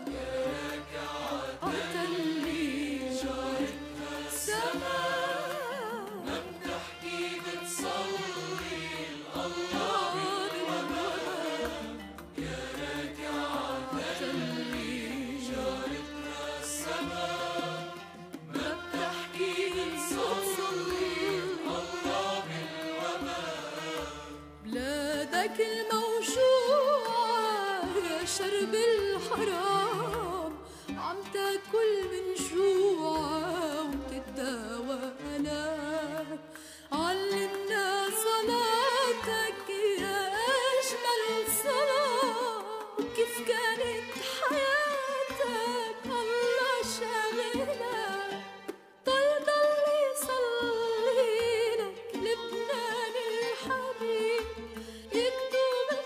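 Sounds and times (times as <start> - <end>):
instrumental accompaniment with bass: 0.0 - 26.6
woman singing hymn: 1.6 - 3.7, 4.3 - 8.8, 9.4 - 11.8, 24.7 - 48.3, 49.1 - 54.5, 55.2 - 56.0.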